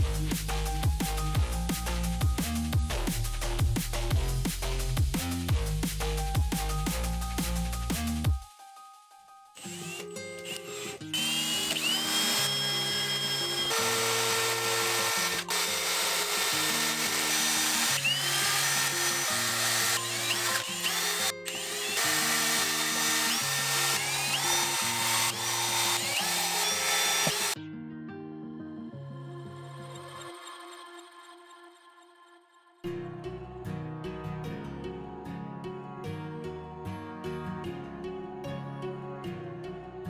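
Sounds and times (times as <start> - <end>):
electronic background music: 0.0 - 27.6
drill bit cutting plastic: 9.6 - 27.6
drill motor whining: 9.6 - 27.6.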